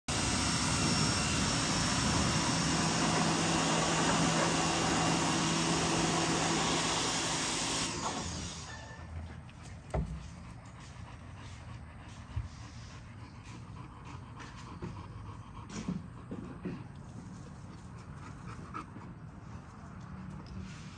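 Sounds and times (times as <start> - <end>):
machine running with rushing noise: 0.1 - 9.1.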